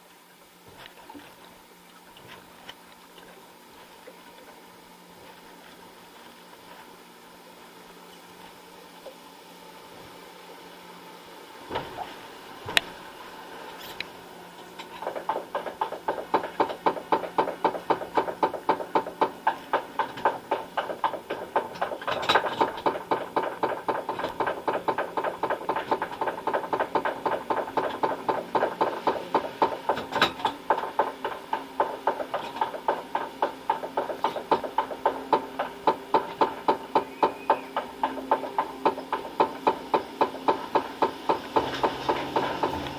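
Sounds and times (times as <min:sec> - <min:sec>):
steady hum: 0:00.0 - 0:42.9
roller coaster ratchet clacking: 0:14.8 - 0:42.9.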